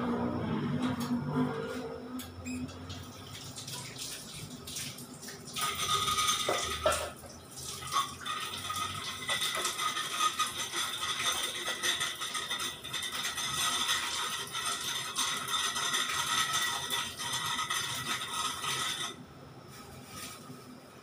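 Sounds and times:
tap water running into sink: 2.8 - 18.6.

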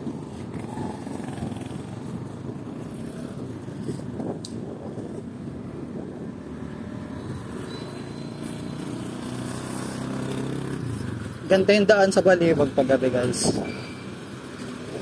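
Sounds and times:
wind rushing over microphone: 0.0 - 7.7, 12.4 - 13.8, 14.8 - 15.0
motorbike road noise: 0.0 - 15.0.

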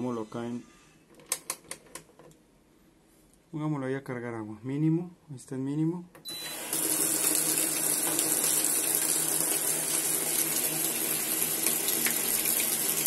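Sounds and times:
water pouring into washer basket: 6.6 - 13.0.

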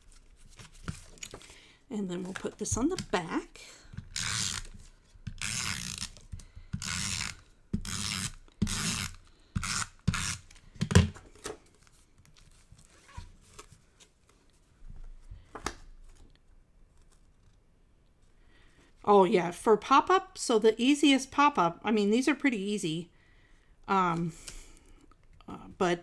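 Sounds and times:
paper handling: 0.0 - 3.2.

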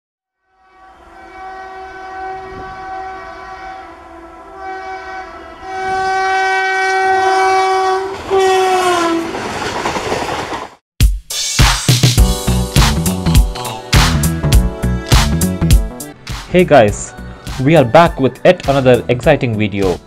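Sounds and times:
locomotive horn: 0.4 - 9.4
rushing noise of passing train: 0.6 - 10.8.

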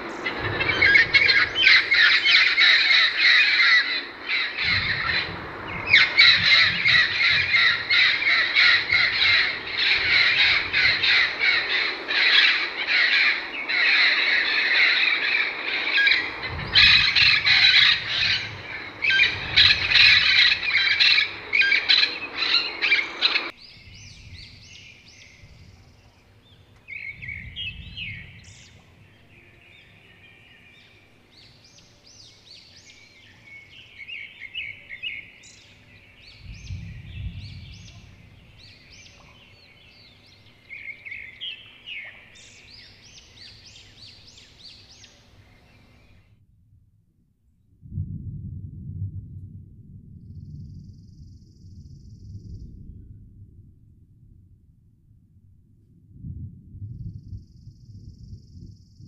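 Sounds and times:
parrots chirping and chattering: 0.2 - 23.5
parrots squawking: 0.2 - 23.5.

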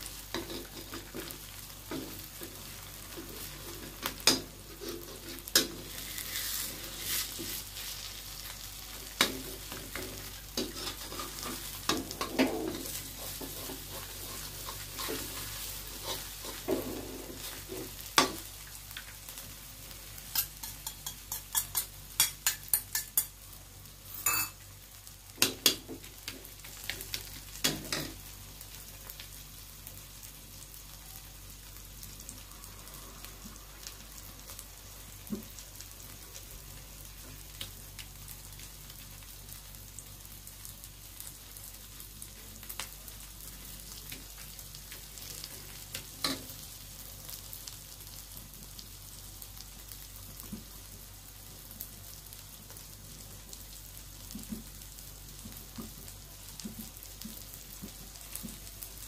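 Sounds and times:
omelette sizzling in oil: 0.0 - 59.0
spatula scraping and knocking pan: 9.1 - 18.5, 20.3 - 23.3.

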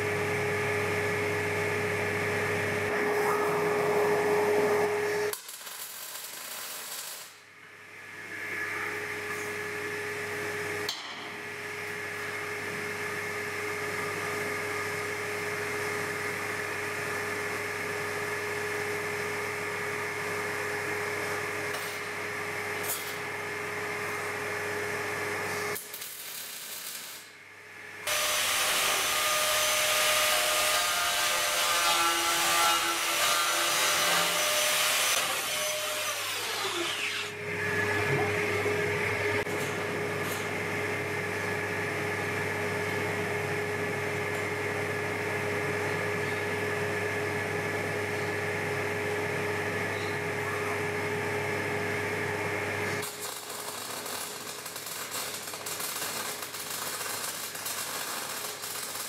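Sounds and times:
machine hum: 0.0 - 54.9
welding arc crackling: 2.9 - 7.6, 25.5 - 27.4, 53.0 - 59.0.

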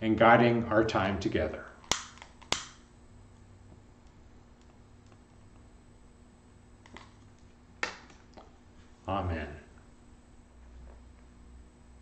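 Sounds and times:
lighter clicks: 1.8 - 2.8.

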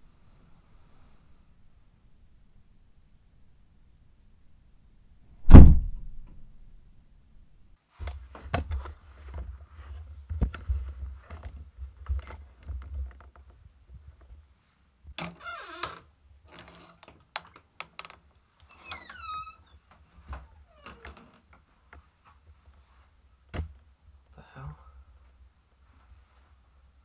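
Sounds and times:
low rumble: 5.4 - 7.7
squeaky creak: 15.2 - 21.4.

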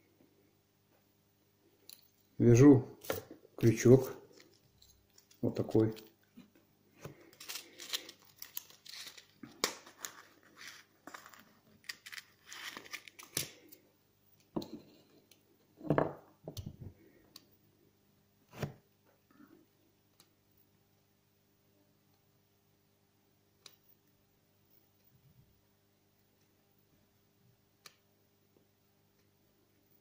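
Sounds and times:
fishing tackle rustling and clicking: 7.2 - 13.6.

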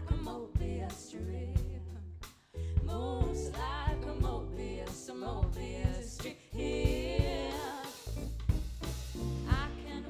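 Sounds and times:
woman singing: 0.0 - 2.1, 2.7 - 8.0, 9.4 - 10.0
live band playing: 0.0 - 10.0.

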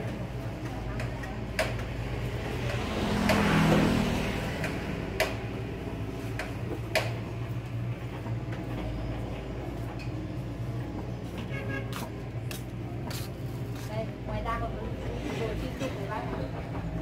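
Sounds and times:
passing vehicle: 0.0 - 12.2.

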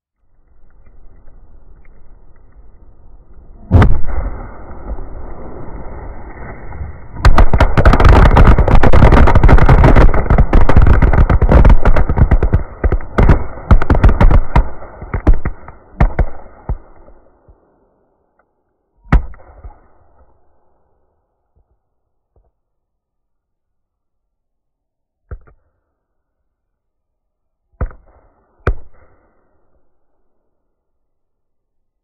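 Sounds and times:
steady pyrotechnic hiss: 0.0 - 15.6
firecrackers popping: 3.6 - 5.8, 7.2 - 17.6
firework bang: 3.6 - 5.9, 6.5 - 17.2.

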